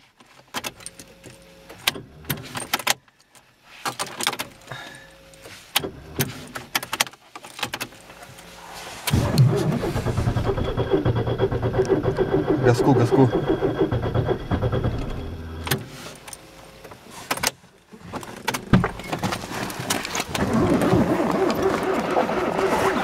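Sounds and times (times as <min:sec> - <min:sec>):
starter motor cranking: 0:09.1 - 0:15.9.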